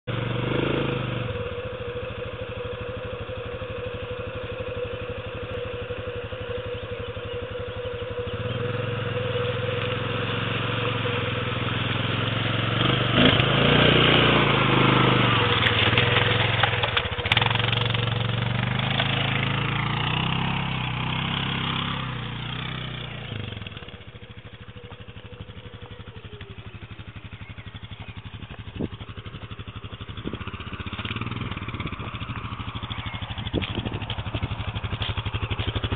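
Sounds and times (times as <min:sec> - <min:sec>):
quad bike engine revving: 0:00.1 - 0:35.9.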